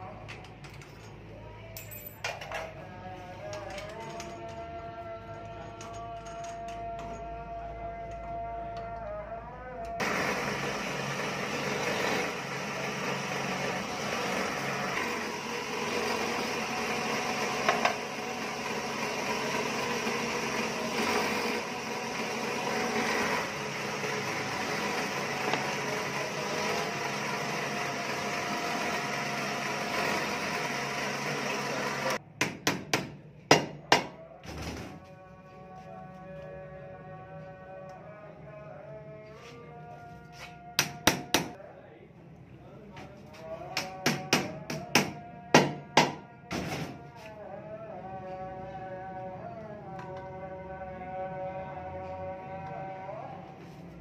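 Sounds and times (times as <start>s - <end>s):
drill press drilling metal: 10.0s - 32.2s.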